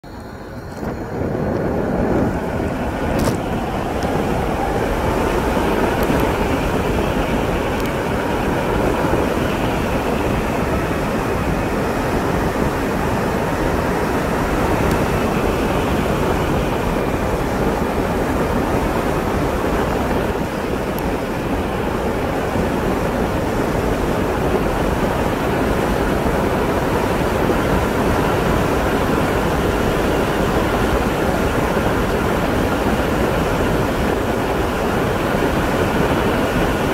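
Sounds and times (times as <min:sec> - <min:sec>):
faint rising whine: 0:00.0 - 0:25.6
tyre noise on asphalt: 0:00.0 - 0:27.7
wind rushing: 0:00.0 - 0:36.9.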